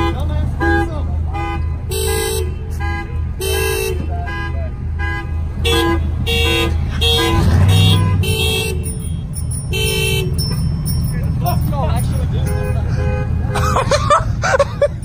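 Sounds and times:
low engine rumble: 0:00.0 - 0:15.0
car alarm two-tone beeping: 0:07.1 - 0:11.7.

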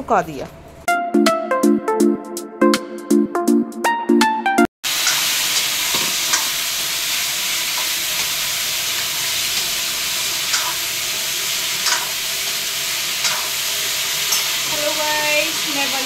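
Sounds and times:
potatoes sizzling in oil: 0:04.9 - 0:16.0.

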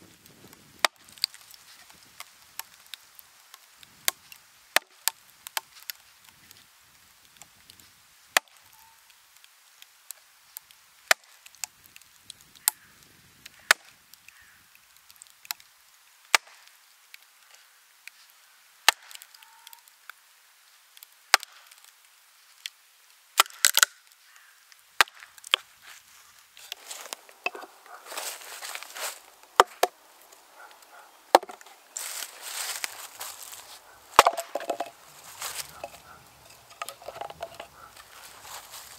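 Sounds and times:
wood crackling and scraping: 0:00.2 - 0:04.4, 0:25.4 - 0:38.9
wooden maul striking axe and wedges: 0:27.4 - 0:27.7, 0:29.6 - 0:29.9, 0:31.3 - 0:31.7, 0:34.1 - 0:37.8.

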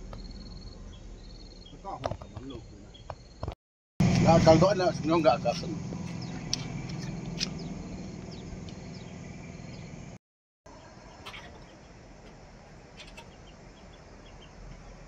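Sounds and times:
faint bird chirps: 0:00.1 - 0:03.4, 0:10.7 - 0:12.0, 0:12.9 - 0:15.0.

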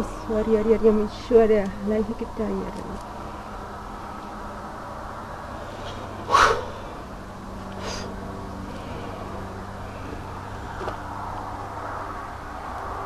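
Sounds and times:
low steady hum: 0:00.0 - 0:13.0
person breathing sharply: 0:07.8 - 0:08.1.

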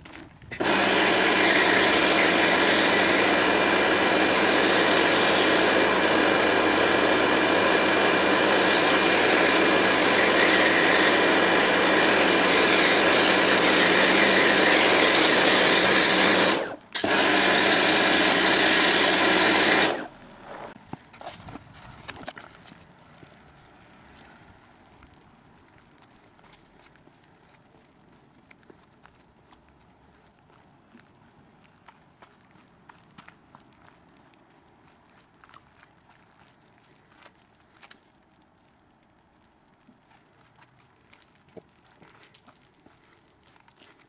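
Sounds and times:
pressure washer spraying foam: 0:00.5 - 0:20.8.

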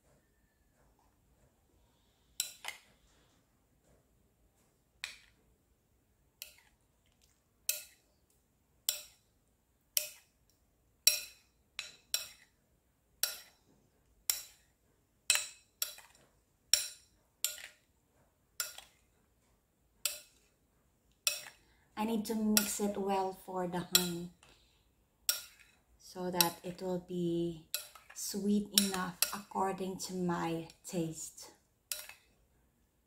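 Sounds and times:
metal spoon clinking bowl: 0:07.7 - 0:08.1, 0:08.8 - 0:09.3, 0:11.0 - 0:12.6, 0:13.2 - 0:13.6, 0:14.3 - 0:14.7, 0:15.3 - 0:17.8, 0:18.6 - 0:19.0, 0:21.2 - 0:21.6, 0:22.3 - 0:23.0, 0:23.8 - 0:24.5, 0:25.3 - 0:25.8, 0:27.7 - 0:29.5, 0:31.9 - 0:32.3.

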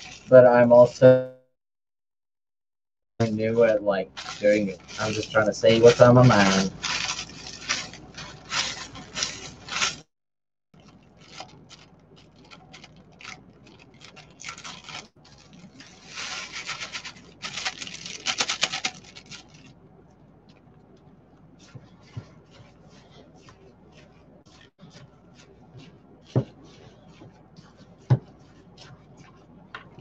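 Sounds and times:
plastic bag crinkling: 0:00.0 - 0:00.3, 0:04.0 - 0:10.1, 0:10.8 - 0:19.8
crumbs rattling and pattering: 0:03.6 - 0:10.0, 0:10.8 - 0:19.8.

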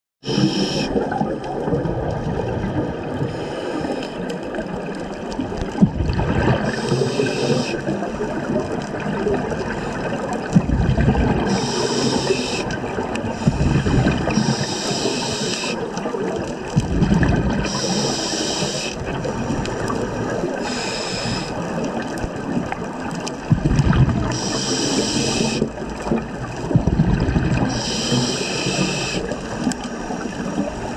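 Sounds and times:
regulator breath hiss: 0:00.2 - 0:01.0, 0:06.7 - 0:07.9, 0:11.5 - 0:15.8, 0:17.6 - 0:19.0, 0:20.6 - 0:21.6, 0:24.3 - 0:25.7, 0:27.7 - 0:30.6
exhaled bubbles gurgling: 0:00.2 - 0:30.9.

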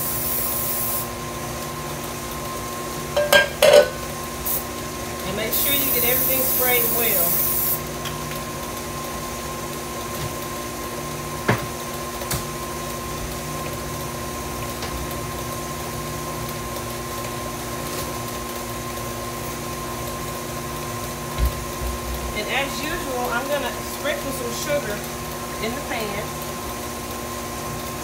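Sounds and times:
stand mixer motor hum: 0:07.8 - 0:28.0.

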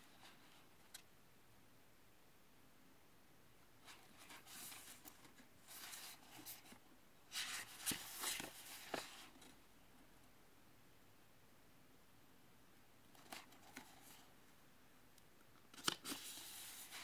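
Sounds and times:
book pages rustling: 0:03.8 - 0:09.6, 0:13.2 - 0:14.3, 0:15.7 - 0:17.0.

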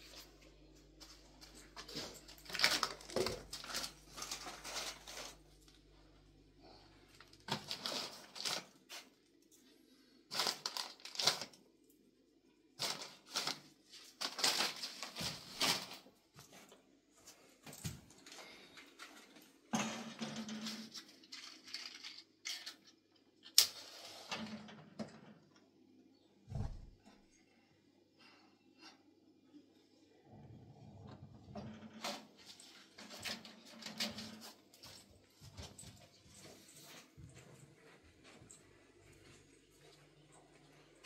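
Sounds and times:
crinkling and crackling handling: 0:00.0 - 0:11.6, 0:12.8 - 0:19.6.

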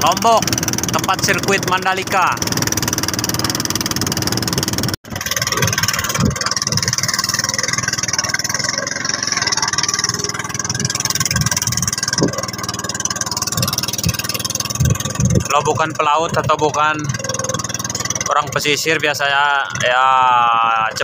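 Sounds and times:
boat engine running: 0:00.0 - 0:21.0
low thumps: 0:02.3 - 0:18.3.

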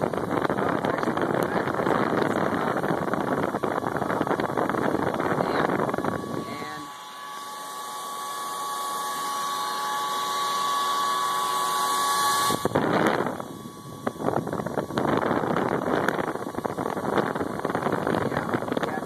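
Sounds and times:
air buffeting microphone: 0:00.0 - 0:07.0, 0:12.5 - 0:19.0
computer fan whine: 0:00.0 - 0:19.0.

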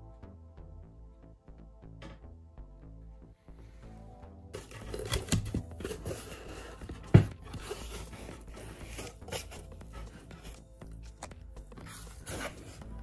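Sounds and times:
packing tape tearing: 0:04.6 - 0:06.5.

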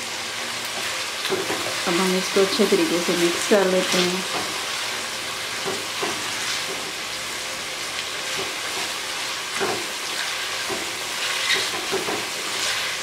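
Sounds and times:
food sizzling in oil: 0:00.0 - 0:13.0
spatula scraping pan: 0:08.3 - 0:13.0.

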